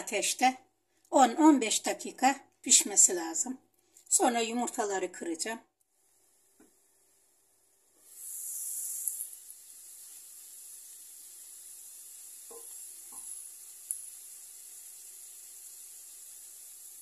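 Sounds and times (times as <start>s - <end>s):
vegetables sizzling in oil: 8.0s - 17.0s.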